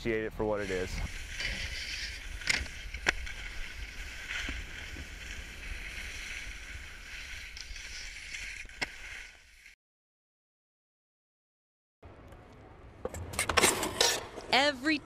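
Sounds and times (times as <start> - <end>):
skis sliding over snow: 0.4 - 9.8
ski impact clacks: 0.6 - 9.8.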